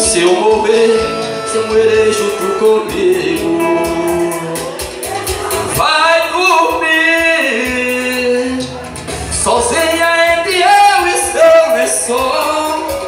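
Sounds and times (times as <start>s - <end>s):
keyboard backing: 0.0s - 13.0s
man singing into microphone: 0.0s - 13.0s
steady percussion beat: 0.0s - 13.0s.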